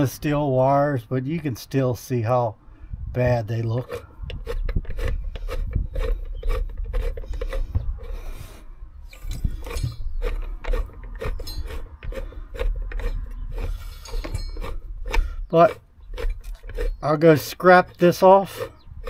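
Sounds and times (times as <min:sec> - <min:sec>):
winch rasping and scraping: 0:03.4 - 0:19.0
winch clicking: 0:09.1 - 0:17.5.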